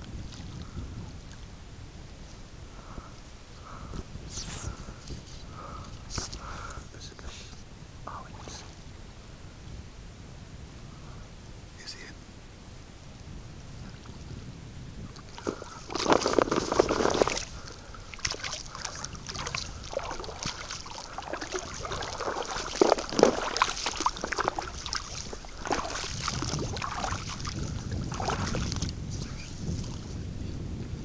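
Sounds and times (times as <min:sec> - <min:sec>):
wading through shallow water: 0:00.0 - 0:06.9, 0:15.0 - 0:30.9.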